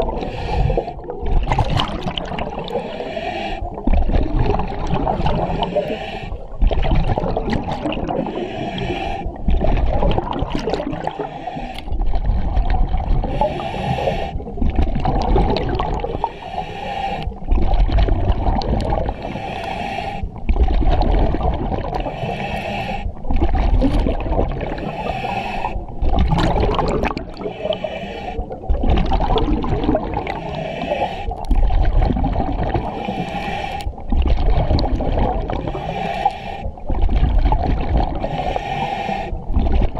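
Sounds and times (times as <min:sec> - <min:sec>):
exhaled bubbles rumbling: 0:00.0 - 0:19.6, 0:20.2 - 0:39.9
regulator hissing on inhale: 0:00.2 - 0:01.1, 0:02.6 - 0:03.8, 0:05.2 - 0:06.5, 0:08.2 - 0:09.4, 0:11.0 - 0:11.9, 0:13.2 - 0:14.5, 0:16.0 - 0:17.4, 0:19.0 - 0:20.4, 0:22.0 - 0:23.2, 0:24.7 - 0:25.9, 0:27.4 - 0:28.6, 0:30.2 - 0:31.5, 0:32.8 - 0:34.0, 0:35.6 - 0:36.8, 0:38.2 - 0:39.5.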